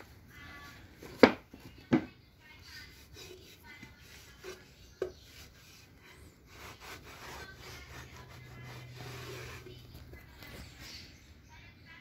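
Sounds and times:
cloth rubbing on metal: 2.6 - 11.1.

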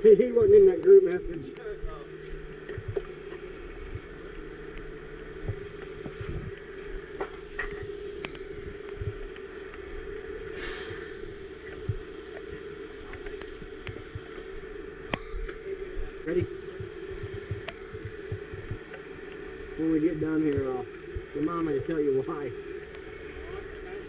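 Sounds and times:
short hiss: 10.6 - 11.2.

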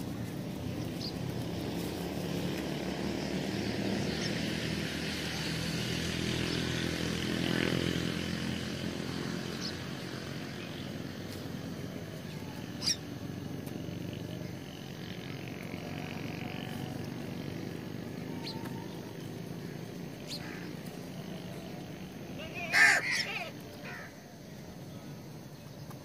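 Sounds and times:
engine passing by: 0.0 - 25.2
bird chirps: 18.3 - 19.0.

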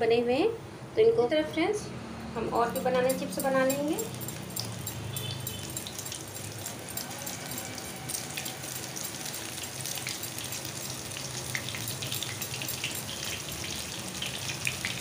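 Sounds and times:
slices frying in hot oil: 3.2 - 15.0.

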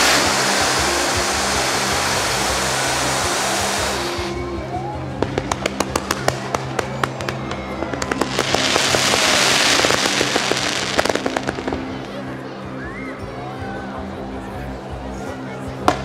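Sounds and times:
fireworks cracking and popping: 0.0 - 4.4, 5.2 - 12.2
firework fountains hissing: 0.0 - 12.4
music with low tones: 0.0 - 16.0.

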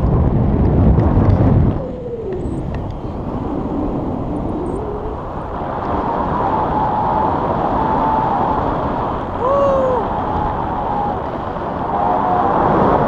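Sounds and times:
wind buffeting microphone: 0.0 - 13.0
faint held tone: 4.2 - 5.3.

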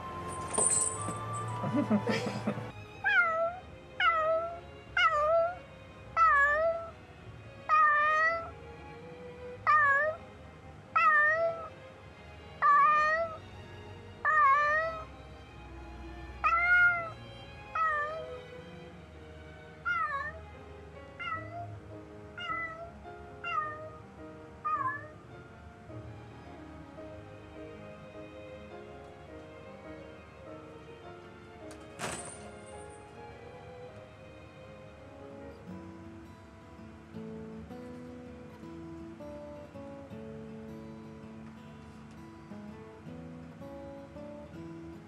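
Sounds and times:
cat meowing: 3.0 - 5.6, 6.2 - 6.9, 7.7 - 8.5, 9.6 - 10.2, 11.0 - 11.7, 12.6 - 13.4, 14.2 - 15.1, 16.4 - 18.4, 19.8 - 20.4, 21.2 - 21.7, 22.4 - 24.0, 24.6 - 25.2.

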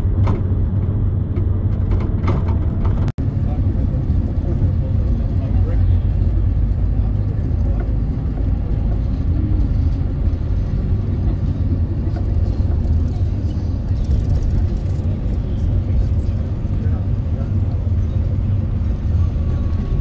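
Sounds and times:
vehicle engine and road rumble: 0.0 - 20.0.

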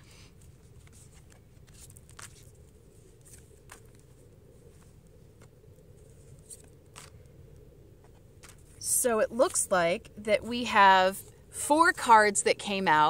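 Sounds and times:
low steady background rumble: 0.0 - 13.0
cards being shuffled: 0.4 - 7.2, 8.0 - 8.8.

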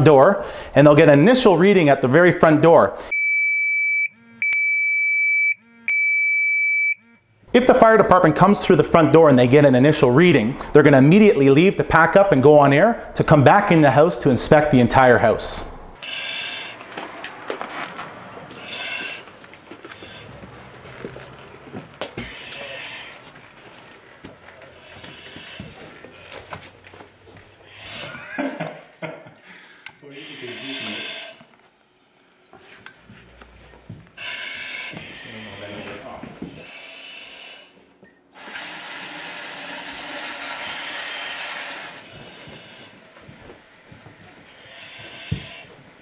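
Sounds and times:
hissing breaths through mask regulator: 16.0 - 16.9, 18.5 - 20.4, 22.2 - 23.3, 24.8 - 26.3, 27.6 - 28.3, 29.3 - 31.5, 34.2 - 38.0, 40.6 - 43.2, 44.4 - 46.0
footsteps: 16.7 - 28.3, 32.5 - 34.3, 34.9 - 36.8, 42.0 - 46.0.

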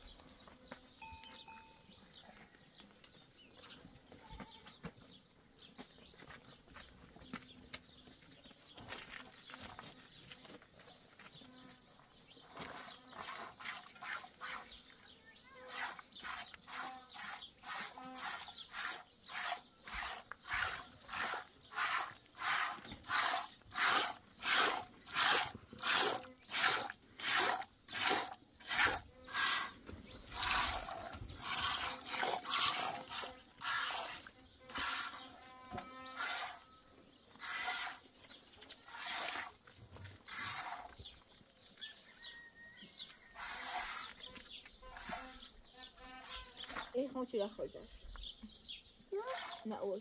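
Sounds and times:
milk squirting into metal pot: 15.7 - 35.3.

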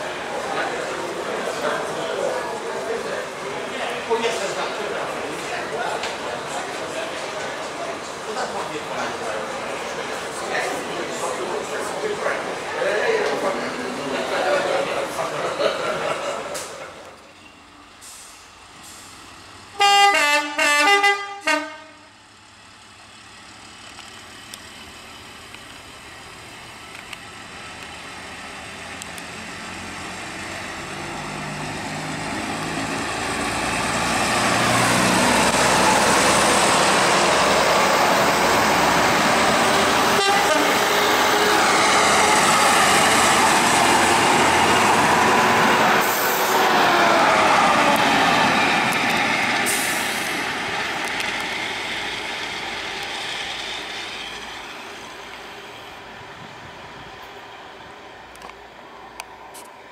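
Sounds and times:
diesel engines pulling away: 0.0 - 20.4, 21.7 - 59.9
train horn blasts: 19.8 - 22.1, 40.1 - 41.1.

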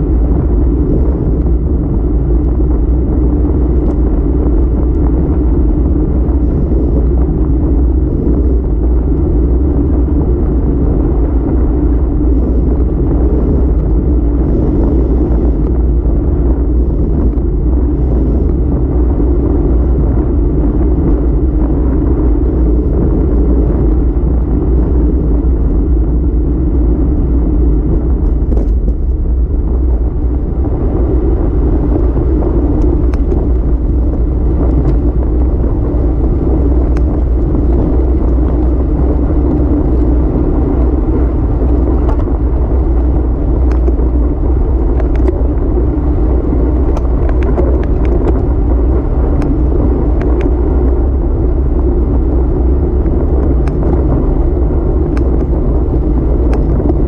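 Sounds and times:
wind buffeting microphone: 0.0 - 57.0.

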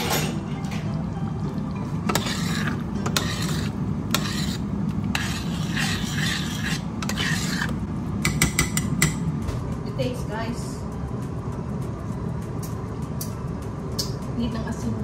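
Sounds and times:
spoon scraping metal pot: 2.0 - 7.8.

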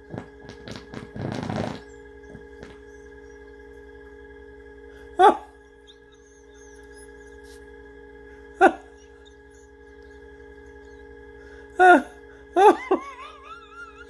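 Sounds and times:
man laughing: 5.2 - 5.5, 8.6 - 9.0, 11.8 - 14.0.

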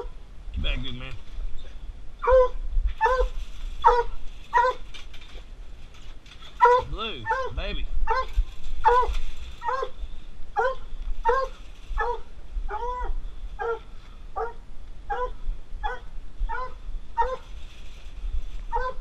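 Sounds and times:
dog whining and yelping: 2.2 - 4.9, 6.5 - 10.0, 10.6 - 13.8, 15.1 - 17.5, 18.7 - 19.0.

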